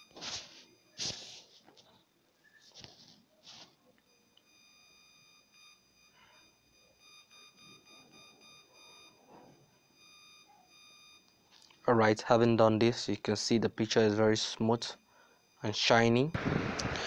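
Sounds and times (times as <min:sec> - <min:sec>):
faint high-pitched electronic tone: 0:00.0 - 0:01.4.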